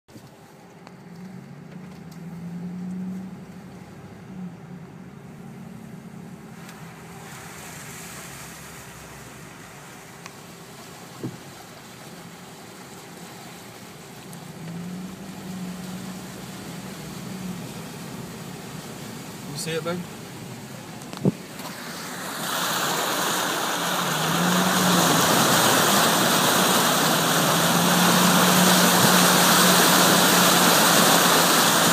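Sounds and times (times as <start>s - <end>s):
vehicle engine running: 0.3s - 7.7s, 14.0s - 31.9s
hiss of water spray: 6.6s - 20.0s, 21.3s - 31.9s.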